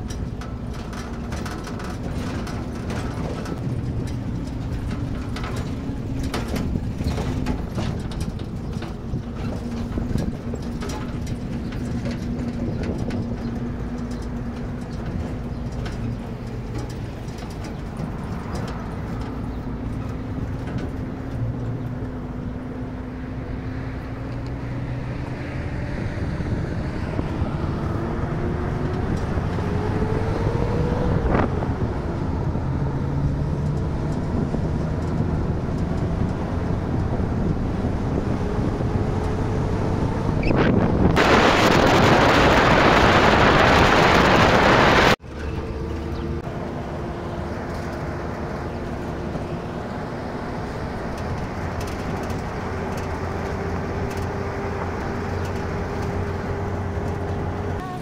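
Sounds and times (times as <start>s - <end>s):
vehicle engine accelerating: 0.0s - 58.0s
wind rushing on microphone: 0.0s - 58.0s.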